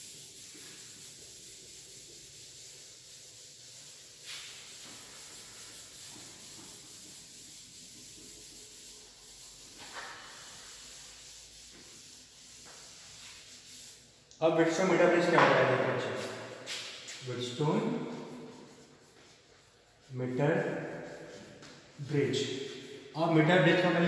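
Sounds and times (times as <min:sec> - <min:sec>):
eraser rubbing on chalkboard: 0:00.0 - 0:24.0.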